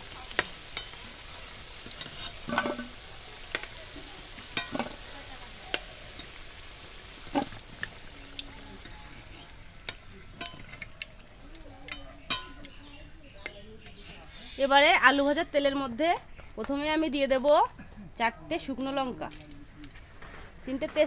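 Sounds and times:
potatoes sizzling in hot oil: 0.0s - 17.6s
steel spoon clinking on pan: 0.7s - 1.0s, 4.6s - 5.0s, 9.8s - 12.8s.

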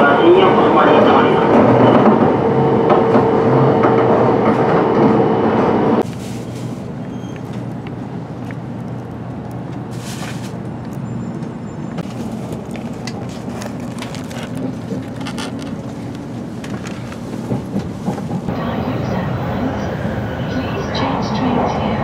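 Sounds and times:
train cabin rumble: 0.0s - 22.0s
soft rustles: 6.0s - 6.9s, 9.9s - 10.6s.

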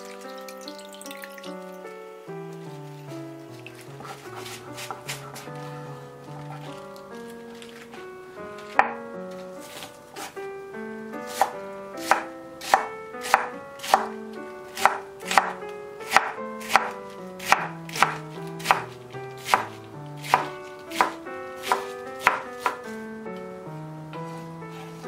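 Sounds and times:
knife chopping on wooden board: 8.7s - 9.0s, 11.3s - 14.1s, 14.8s - 22.9s.

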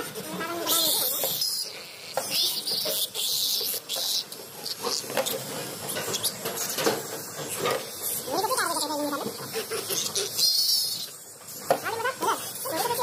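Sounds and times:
piglet squealing: 0.2s - 5.1s, 8.2s - 11.2s, 11.8s - 13.0s.

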